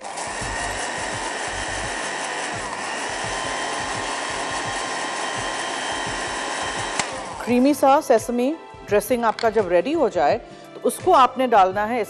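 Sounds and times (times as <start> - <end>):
blender running: 0.0 - 8.0.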